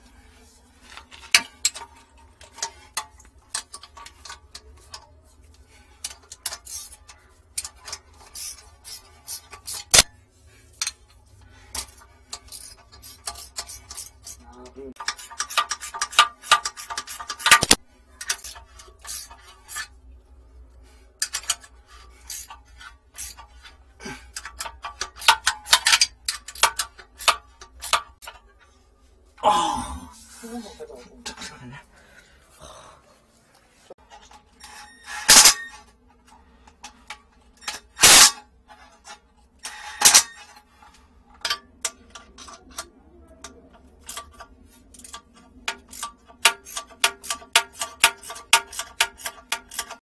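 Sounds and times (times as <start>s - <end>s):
ratchet wrench clicking: 6.0s - 10.0s, 11.8s - 14.4s, 15.0s - 19.8s, 24.3s - 28.3s, 41.4s - 50.0s.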